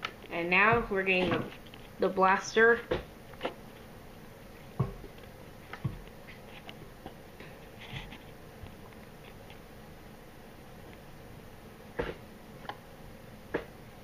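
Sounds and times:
faint room hiss: 0.0s - 14.0s.

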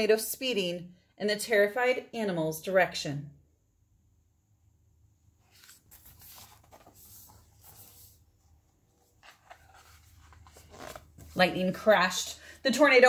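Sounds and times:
book pages turning: 5.4s - 11.7s.

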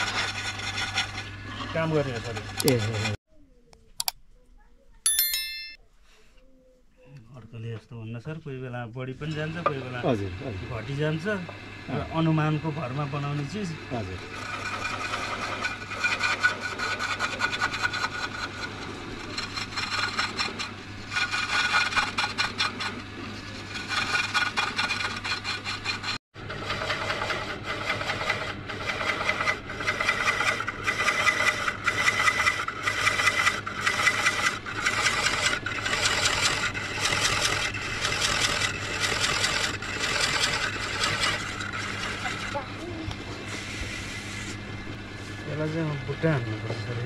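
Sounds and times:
tool scraping wood: 0.0s - 3.2s, 13.4s - 44.6s.

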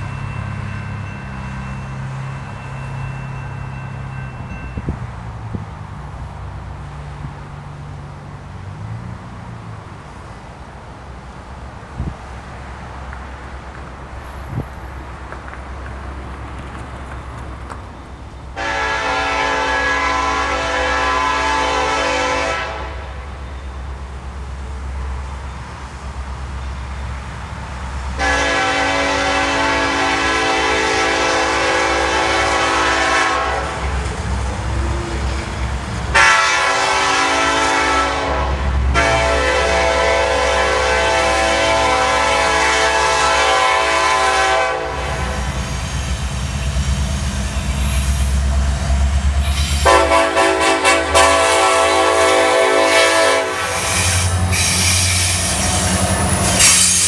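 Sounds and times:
wheels clicking over rail joints: 0.0s - 18.6s
locomotive air horn: 18.6s - 23.4s, 28.2s - 34.0s, 36.1s - 46.0s, 49.4s - 57.0s.

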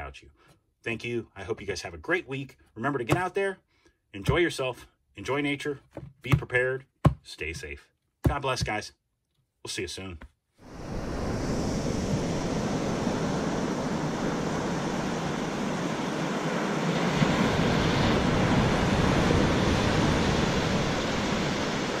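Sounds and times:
ocean surf breaking on beach: 10.6s - 22.0s.

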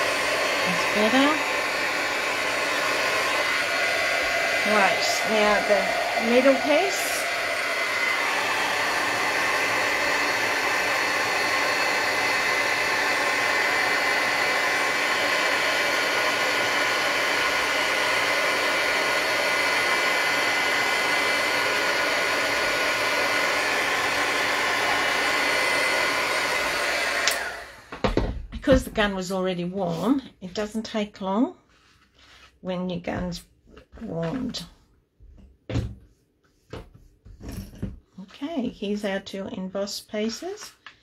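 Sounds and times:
heat gun blowing air: 0.0s - 28.0s.

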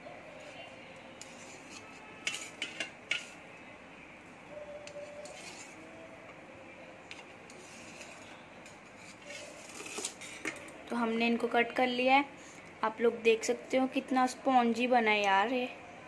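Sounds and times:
knife scraping metal plate: 1.2s - 3.4s, 4.8s - 5.8s.

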